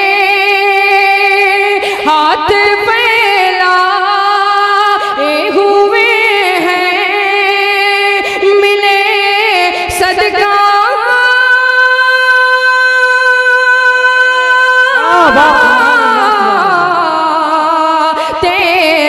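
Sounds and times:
man singing unaccompanied: 15.0 - 17.6.

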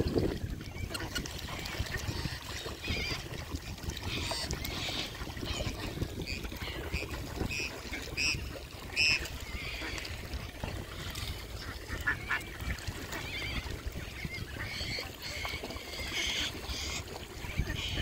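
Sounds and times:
waterfowl calling: 0.6 - 18.0.

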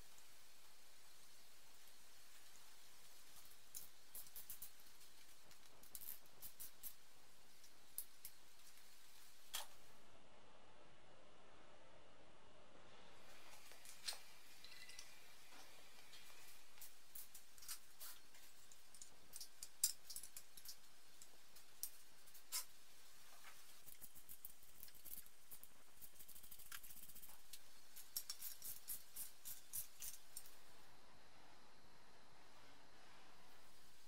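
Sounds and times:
metal parts and tools clicking: 14.0 - 15.2, 18.6 - 22.7.

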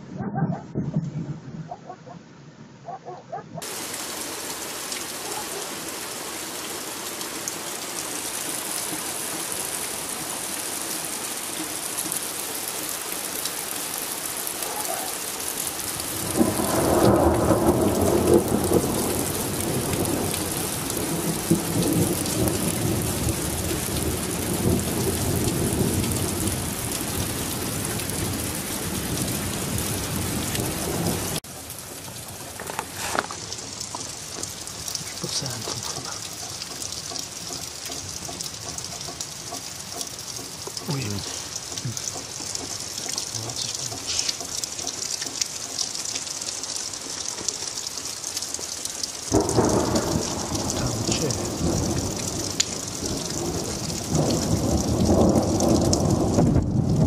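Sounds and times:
steady rain: 3.6 - 57.0
rolling thunder: 16.0 - 31.4, 49.3 - 57.0.

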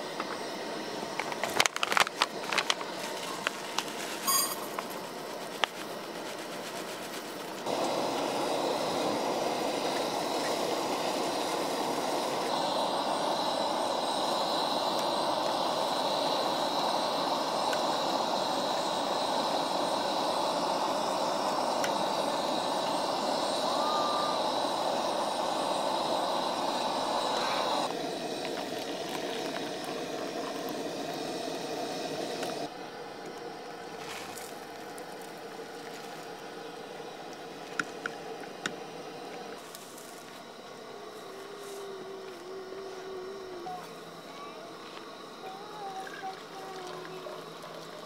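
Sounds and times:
steady rushing hiss: 0.0 - 48.0
metal clinking against steel mug: 4.2 - 4.8.

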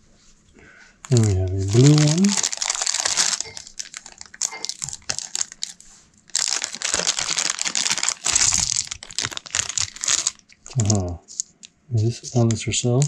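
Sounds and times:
plastic bag crinkling: 1.0 - 11.0.

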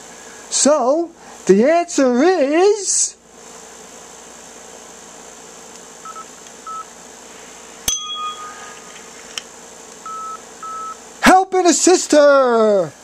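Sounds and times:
background hum and hiss: 0.0 - 13.0
sharp ringing ding: 7.9 - 8.7
short electronic beeps: 10.1 - 11.0.

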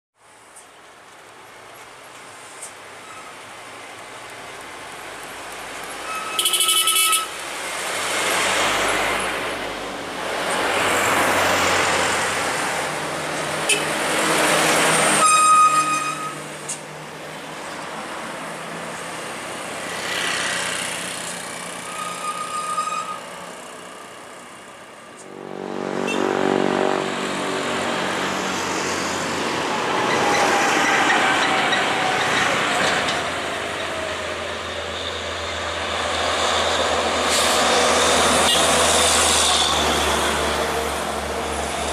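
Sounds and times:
trucks and cars passing: 0.2 - 41.9
short horn beeps: 6.1 - 7.4.

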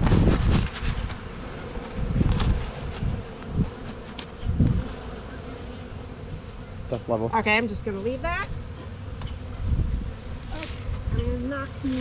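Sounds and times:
honeybees buzzing: 0.0 - 12.0.

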